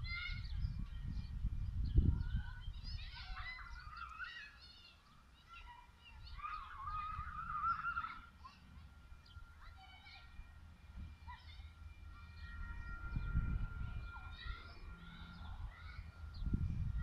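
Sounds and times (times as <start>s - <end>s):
birds chirping and warbling: 0.0s - 17.0s
low rumble: 10.2s - 17.0s.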